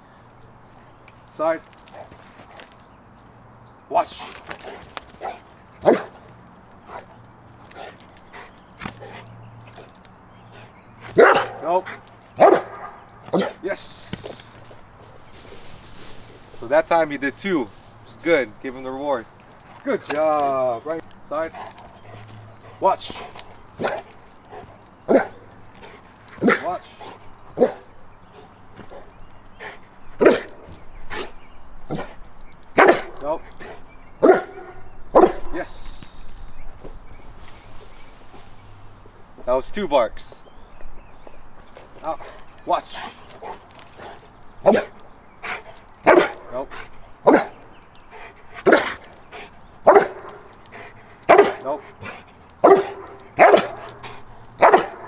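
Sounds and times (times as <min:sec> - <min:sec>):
dog barking: 0:05.2 - 0:06.2, 0:11.1 - 0:13.6, 0:23.8 - 0:24.1, 0:25.1 - 0:25.5, 0:27.6 - 0:28.0, 0:30.2 - 0:30.6, 0:32.8 - 0:33.2, 0:34.2 - 0:35.6, 0:46.0 - 0:46.4, 0:47.2 - 0:47.6, 0:49.8 - 0:50.5, 0:51.3 - 0:51.7, 0:52.6 - 0:55.0.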